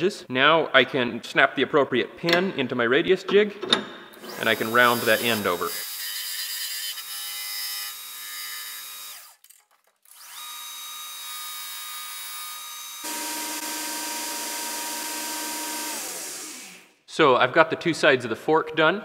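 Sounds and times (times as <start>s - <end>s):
belt grinder grinding steel: 4.2s - 16.9s.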